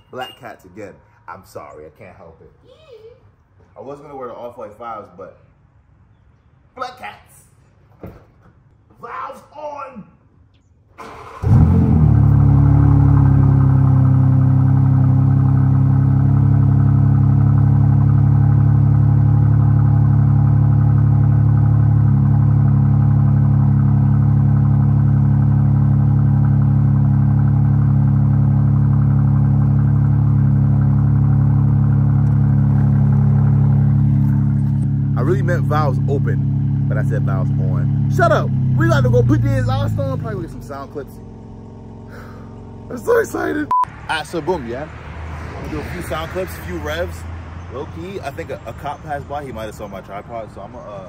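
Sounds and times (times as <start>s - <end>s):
car engine cold start and idle: 10.9s - 44.9s.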